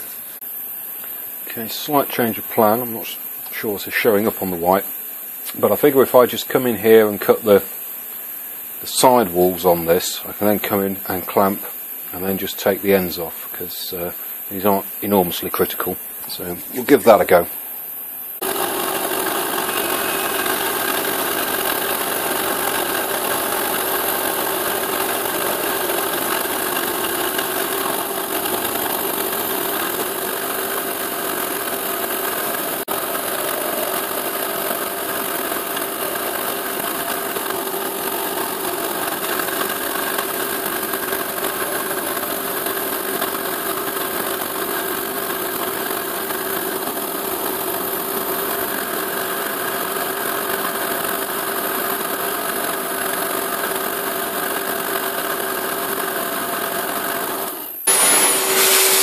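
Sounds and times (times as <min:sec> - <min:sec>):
milling machine motor hum: 0:18.4 - 0:43.0, 0:56.9 - 0:59.0
stepper motors hissing: 0:57.9 - 0:59.0.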